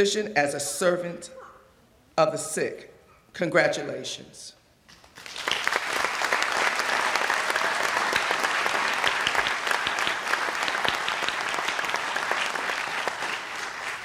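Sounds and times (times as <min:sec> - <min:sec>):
audience applauding: 0:05.0 - 0:14.0.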